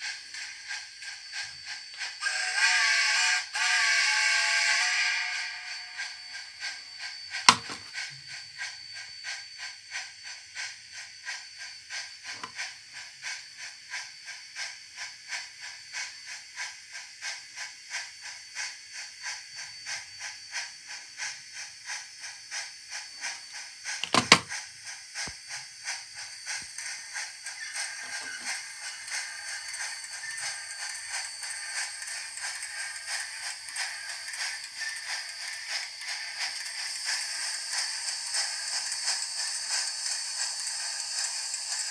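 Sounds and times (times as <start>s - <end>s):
model steam locomotive chuffing: 0.0s - 41.9s.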